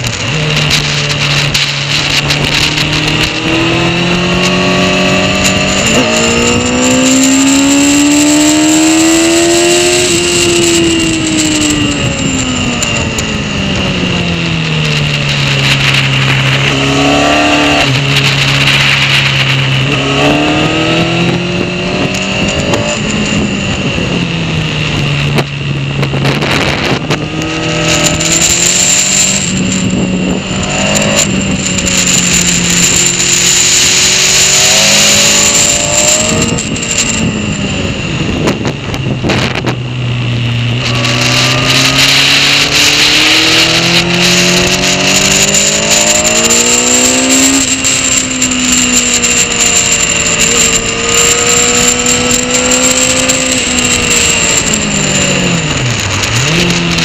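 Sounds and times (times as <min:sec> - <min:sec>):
motorcycle engine accelerating: 0:00.0 - 0:57.0
wind noise: 0:00.0 - 0:57.0.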